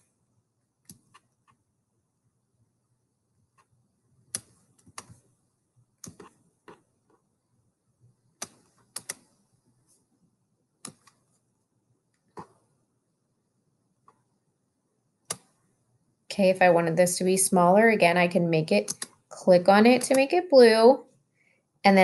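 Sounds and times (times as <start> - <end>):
computer mouse clicks: 0.8 - 1.6, 4.3 - 5.2, 6.0 - 6.8, 8.4 - 9.3, 10.8 - 11.2, 15.2 - 15.6, 18.8 - 19.2.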